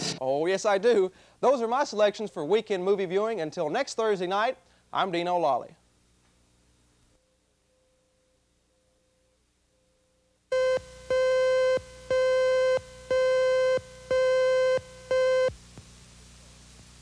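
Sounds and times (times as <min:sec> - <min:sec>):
buzzy electronic beeps: 0:10.5 - 0:15.5.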